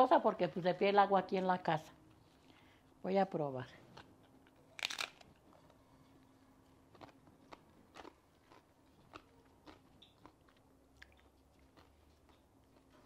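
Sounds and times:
faint chewing crunches: 0:03.8 - 0:13.0
crunchy bite: 0:04.8 - 0:05.3.

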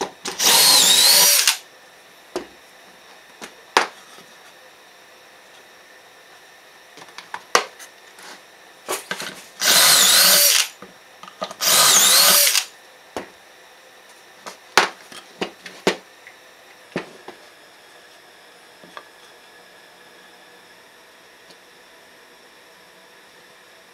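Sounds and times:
power drill boring: 0:00.4 - 0:01.6, 0:09.6 - 0:10.8, 0:11.6 - 0:12.7.

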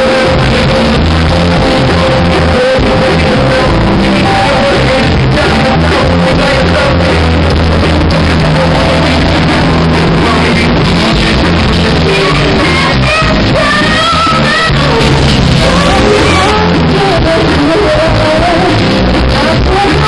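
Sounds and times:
electric keyboard: 0:00.0 - 0:19.9
drums: 0:00.0 - 0:20.0
electric guitar: 0:00.0 - 0:20.0
person singing: 0:00.0 - 0:20.0.

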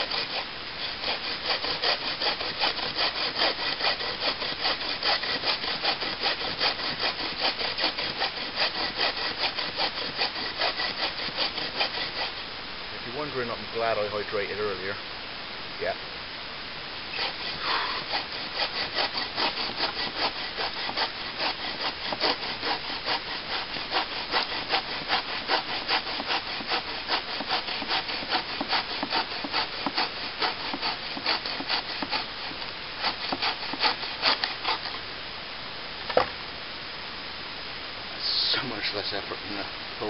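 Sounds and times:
bow saw cutting a branch: 0:00.0 - 0:12.5, 0:17.1 - 0:35.0.

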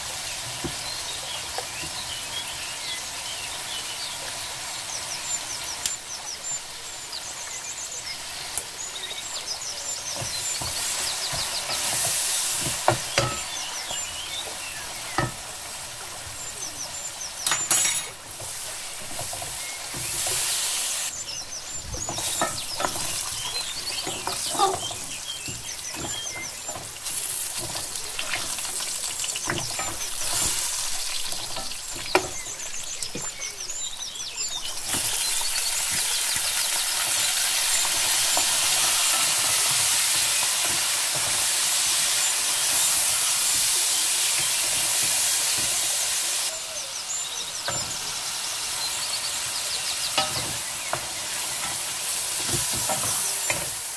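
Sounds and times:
onions sizzling in hot oil: 0:00.0 - 0:53.9
wooden spoon knocking a pot: 0:10.2 - 0:14.1, 0:22.0 - 0:30.7.

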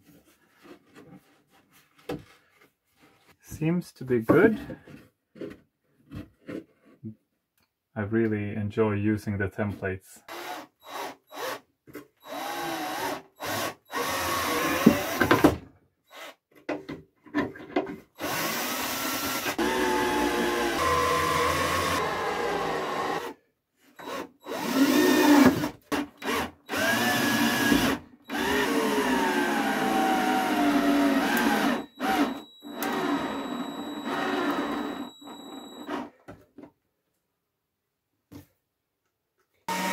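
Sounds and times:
cordless drill drilling wood: 0:10.3 - 0:11.6, 0:12.2 - 0:16.4, 0:18.2 - 0:23.4, 0:24.0 - 0:36.2, 0:39.7 - 0:39.9.

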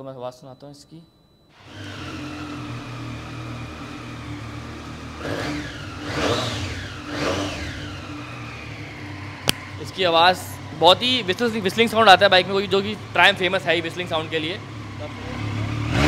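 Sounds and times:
motorcycle engine idling and revving: 0:01.6 - 0:16.0.

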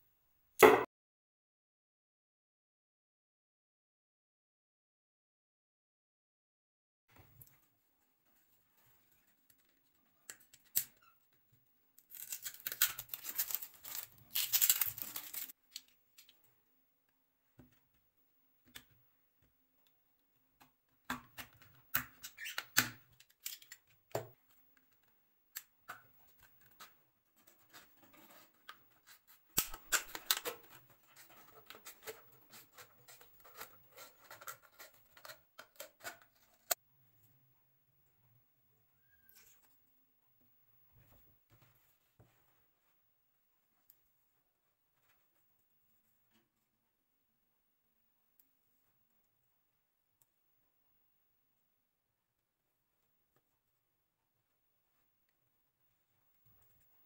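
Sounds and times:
scissors snipping plastic: 0:29.5 - 0:36.8.

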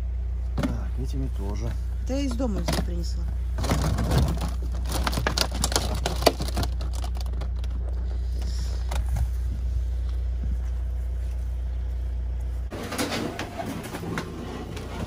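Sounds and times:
steady low rumble: 0:00.0 - 0:12.8
plastic bottles crackling and knocking: 0:02.3 - 0:08.2.

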